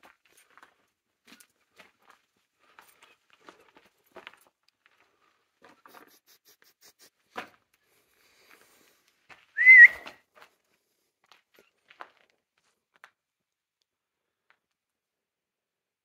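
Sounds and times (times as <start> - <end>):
wavering whistle: 9.6 - 10.1.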